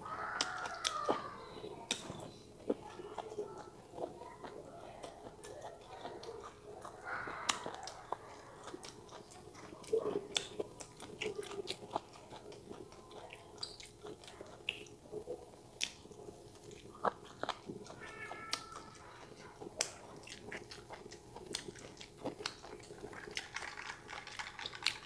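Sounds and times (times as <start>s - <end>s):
chewing with wet mouth clicks: 0.4s - 25.0s.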